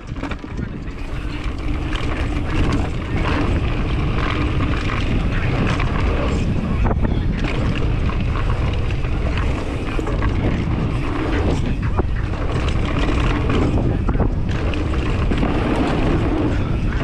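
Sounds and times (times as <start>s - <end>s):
bike rattling and knocking: 0.0s - 17.0s
tyre noise on dirt: 0.0s - 17.0s
wind rushing over microphone: 0.0s - 17.0s.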